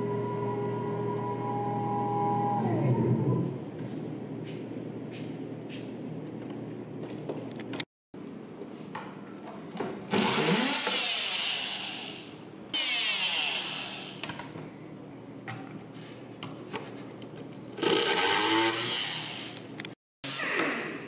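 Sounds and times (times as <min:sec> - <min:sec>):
oscillating multi-tool cutting plywood: 0:10.1 - 0:14.2, 0:17.8 - 0:19.7.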